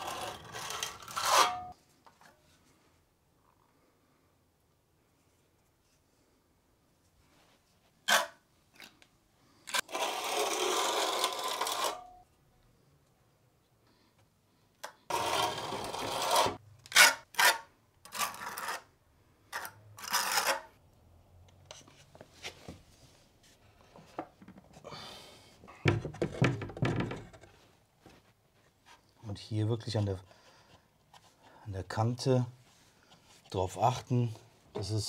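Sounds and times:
trowel scraping on concrete: 0.0 - 1.8, 9.7 - 12.2, 15.1 - 18.9, 19.5 - 20.8
floorboard knocking and rubbing: 25.8 - 27.6.

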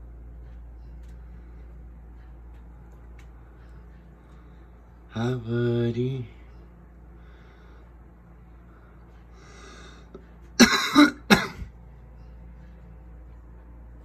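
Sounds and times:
low steady hum: 0.0 - 14.0
person coughing: 10.6 - 11.7.

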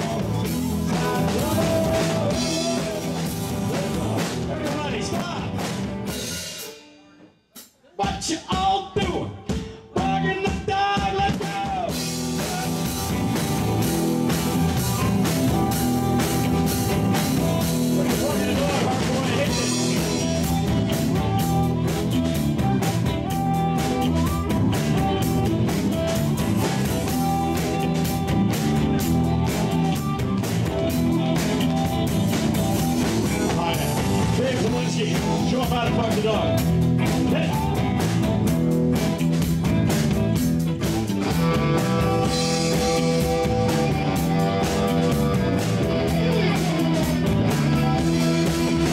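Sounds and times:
live rock band playing: 0.0 - 48.9
harmonica sustained notes: 41.4 - 48.9.

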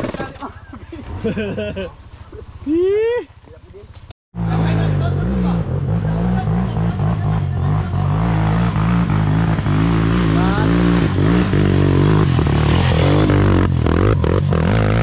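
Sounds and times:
dirt bike engine revving: 4.4 - 15.0.

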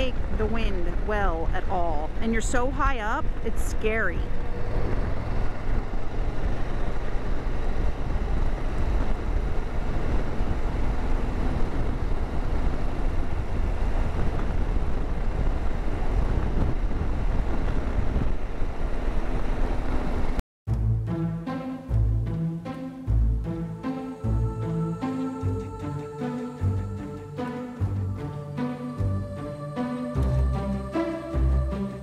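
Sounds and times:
wind rushing over microphone: 0.0 - 20.4
motorcycle engine running: 0.0 - 21.0.

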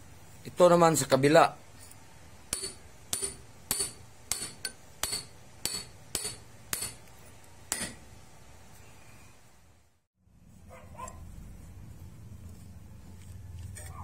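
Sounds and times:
sharp metallic taps: 2.5 - 7.1.

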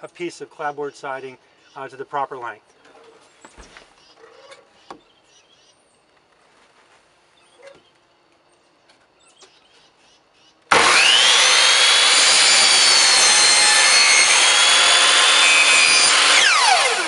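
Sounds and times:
miter saw motor whine: 10.7 - 17.0
saw cutting through board: 10.7 - 17.0.

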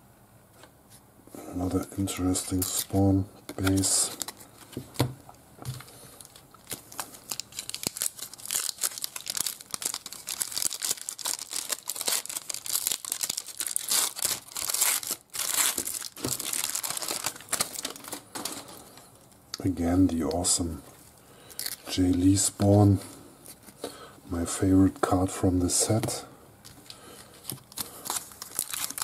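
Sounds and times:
foil wrapper tearing and crinkling: 2.4 - 4.5, 6.2 - 18.6, 21.5 - 22.0, 26.9 - 29.0.

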